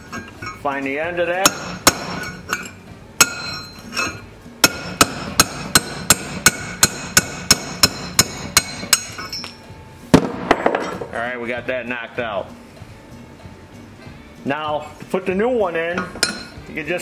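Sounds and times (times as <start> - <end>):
hammer striking steel punch: 1.4 - 11.0, 16.0 - 16.6.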